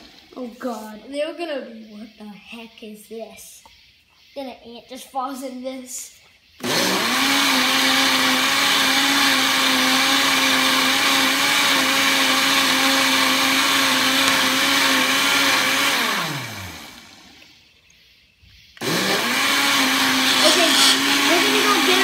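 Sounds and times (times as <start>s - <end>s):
blender running: 6.6s - 17.5s, 18.8s - 22.0s.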